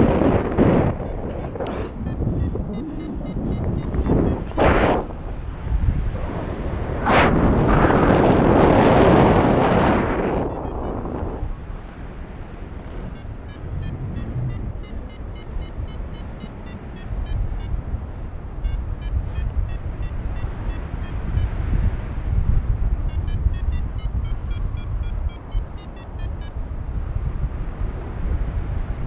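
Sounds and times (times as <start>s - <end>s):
wind rushing over microphone: 0.0s - 29.0s
variometer beeping: 1.0s - 4.6s, 12.9s - 17.8s.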